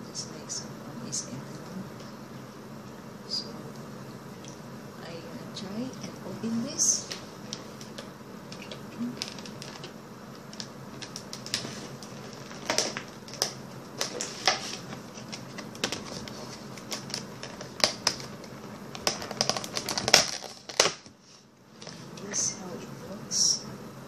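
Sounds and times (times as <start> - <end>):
plastic packaging crinkling: 7.0 - 22.2.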